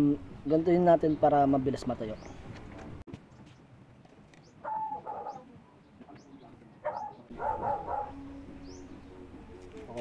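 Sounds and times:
bird calls: 4.3s - 9.2s.

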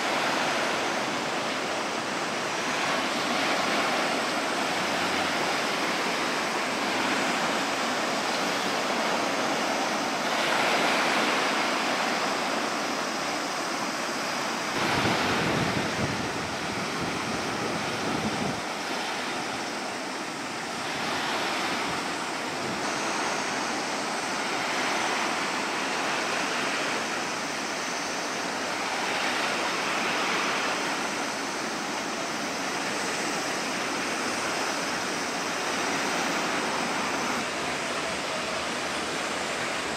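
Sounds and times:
waves washing: 0.0s - 39.9s
wind rumbling on microphone: 14.7s - 23.9s.

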